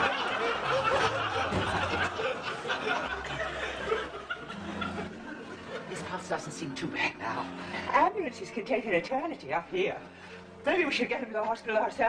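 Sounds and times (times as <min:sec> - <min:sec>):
studio audience laughing: 0:00.0 - 0:06.2.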